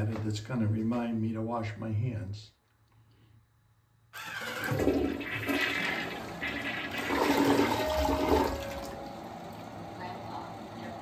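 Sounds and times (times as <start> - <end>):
toilet flushing: 4.2 - 11.0.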